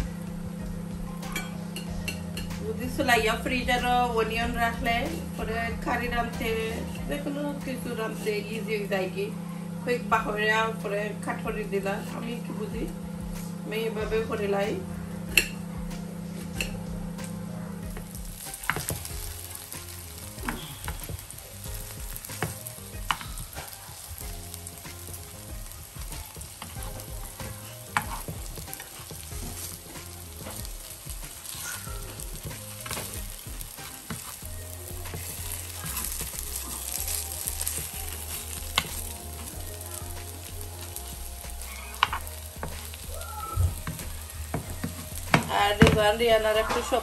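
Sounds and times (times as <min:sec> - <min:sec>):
hash browns sizzling in oil: 0:16.6 - 0:47.0.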